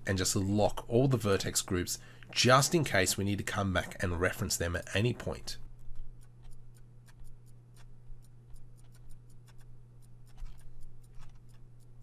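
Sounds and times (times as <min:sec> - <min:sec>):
steady low hum: 0:00.0 - 0:12.0
mouse and keyboard clicking: 0:05.2 - 0:12.0.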